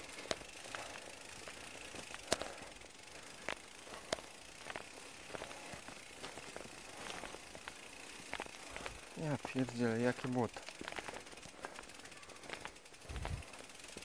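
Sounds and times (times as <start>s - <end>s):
bicycle clicks and knocks: 0.0s - 14.0s
footsteps in mud: 3.4s - 9.7s, 10.6s - 11.8s.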